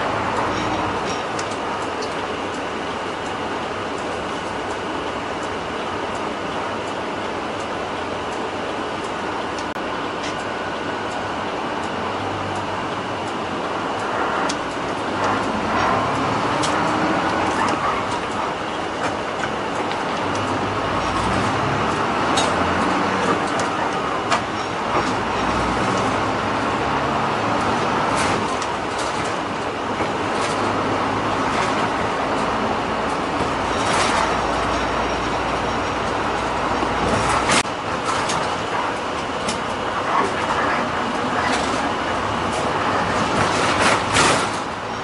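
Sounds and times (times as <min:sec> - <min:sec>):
bus engine running: 0:00.0 - 0:45.0
road noise: 0:00.0 - 0:45.0.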